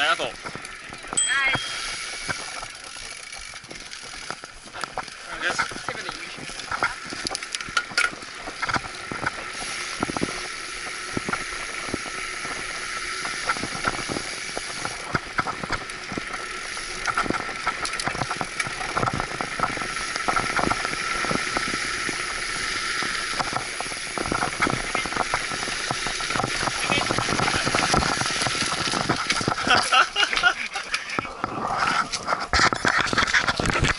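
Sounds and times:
bike rattling over bumps: 0.0 - 33.9
bike tyre hiss: 9.4 - 15.1, 19.8 - 24.2.

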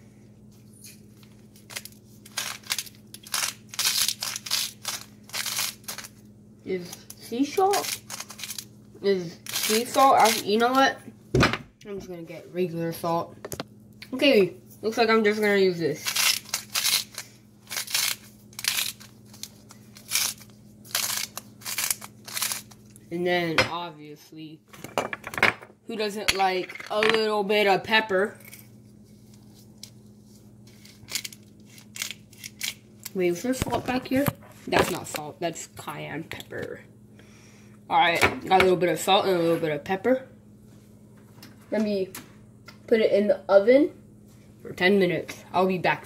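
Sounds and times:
spice grinder crunching salt: 1.6 - 6.2, 6.8 - 8.7, 9.4 - 10.7, 15.9 - 23.0, 30.7 - 33.2
salt grinder grinding: 16.0 - 22.8.

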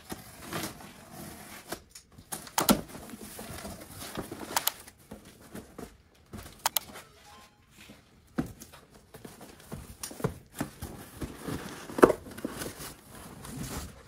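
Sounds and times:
cardboard being handled: 7.9 - 14.0.

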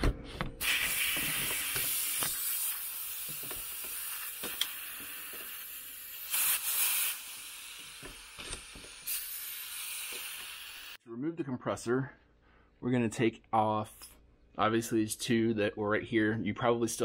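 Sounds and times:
compressed air hissing: 0.6 - 11.0.

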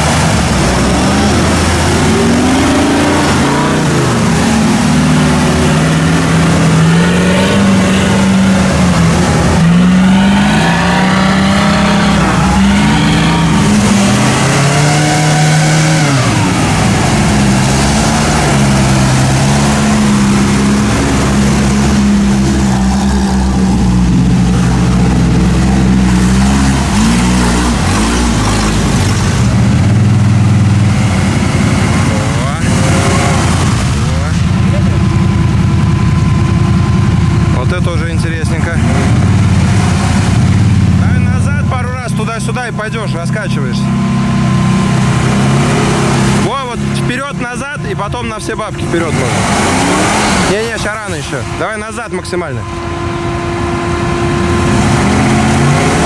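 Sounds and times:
vehicle engine revving: 0.0 - 56.0.

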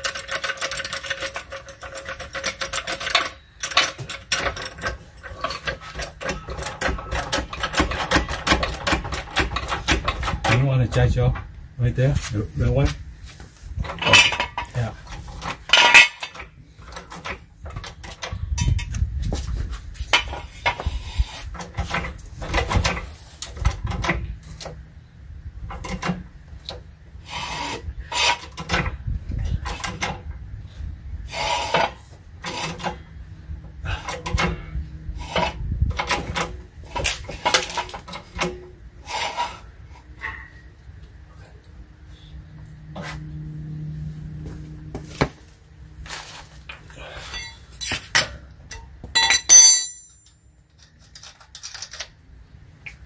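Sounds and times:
floor jack being worked: 0.0 - 10.6, 31.3 - 33.0, 33.9 - 40.5
metal clanks and scrapes: 0.0 - 11.4, 12.1 - 24.8, 31.3 - 33.1, 33.9 - 40.7, 46.0 - 52.1.

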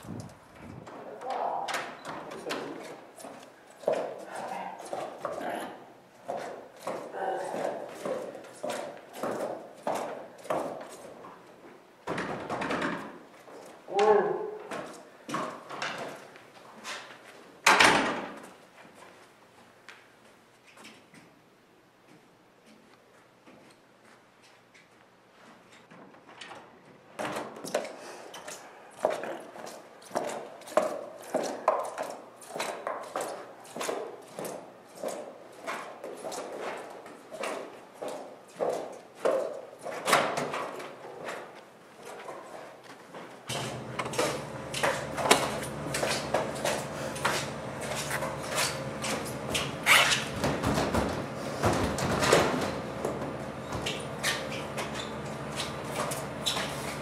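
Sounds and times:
knocks and rustling: 43.2 - 57.0
steady low hum: 43.5 - 57.0.

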